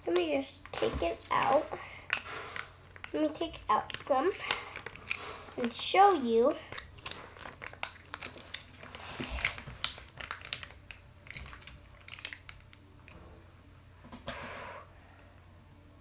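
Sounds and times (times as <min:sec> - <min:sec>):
plastic crinkling rustles: 0:00.0 - 0:13.2
plastic package clicks: 0:03.8 - 0:05.8, 0:06.7 - 0:12.8.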